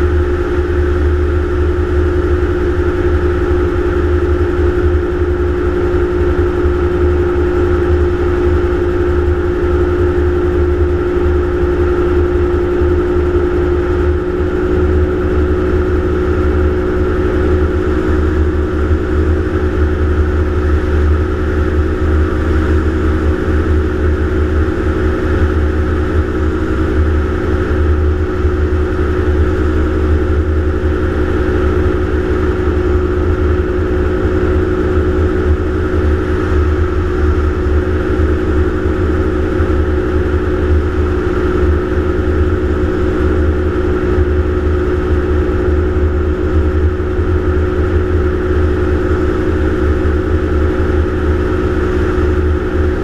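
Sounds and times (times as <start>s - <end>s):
gyroplane engine and propeller droning: 0.0s - 53.0s.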